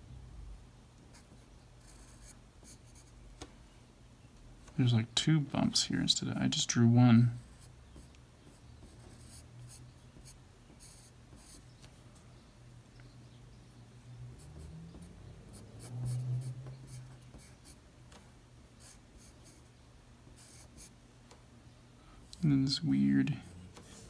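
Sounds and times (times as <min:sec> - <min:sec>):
pencil scratching on paper: 0:01.8 - 0:03.1, 0:07.4 - 0:11.6.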